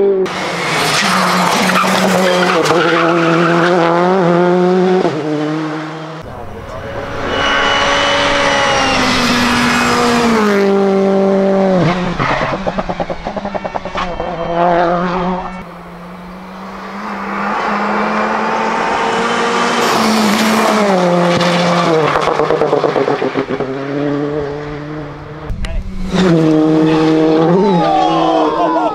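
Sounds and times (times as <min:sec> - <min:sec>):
rally car engine at full throttle: 0:00.0 - 0:28.9
exhaust popping and crackling: 0:09.4 - 0:16.0, 0:25.0 - 0:26.9.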